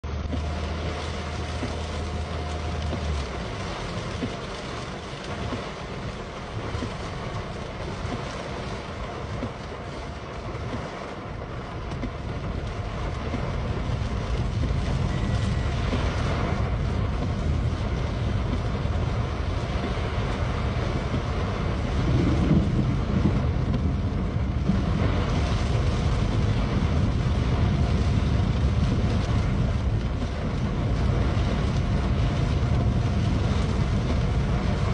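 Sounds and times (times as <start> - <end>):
car rumbling on wet road: 0.0 - 34.9
heavy rain on a car: 0.0 - 34.9
low hum: 11.6 - 34.9.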